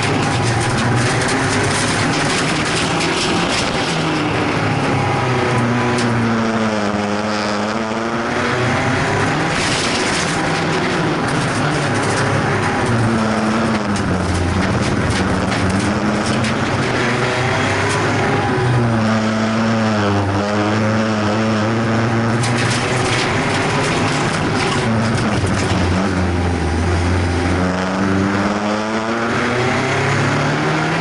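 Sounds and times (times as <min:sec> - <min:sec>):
knocks and rattles: 0:00.0 - 0:06.3, 0:09.0 - 0:18.5, 0:22.1 - 0:27.5
race car engine revving: 0:00.0 - 0:31.0.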